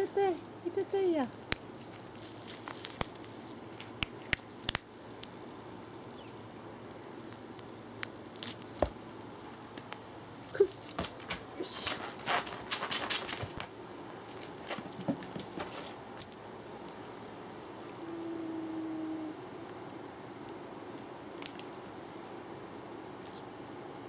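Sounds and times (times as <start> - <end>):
small jingling: 0.0 - 4.0, 5.8 - 9.8, 10.4 - 16.5
cat scuffling and rustling: 10.6 - 16.1.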